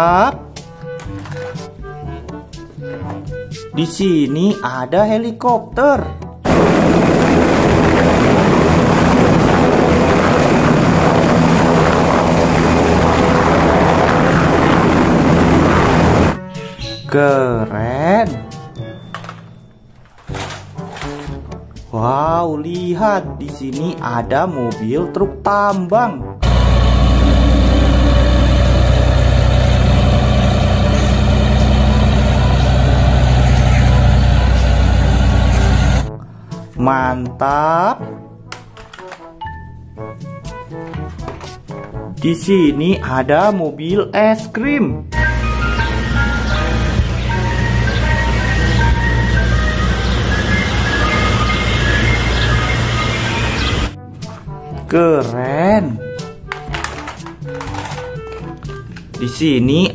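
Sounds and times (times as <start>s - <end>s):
diesel engine under load: 6.5s - 16.4s, 26.4s - 36.1s, 45.2s - 54.0s
helicopter rotor and turbine: 6.5s - 16.4s, 26.4s - 36.1s, 45.2s - 54.0s
high steady whine: 6.5s - 16.4s, 26.4s - 36.1s, 45.2s - 54.0s
hydraulic hoist raising: 26.4s - 36.1s, 45.2s - 54.0s.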